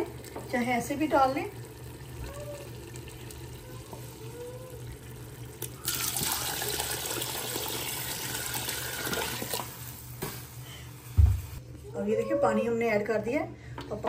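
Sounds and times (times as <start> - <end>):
water pouring into pot: 0.0 - 10.0.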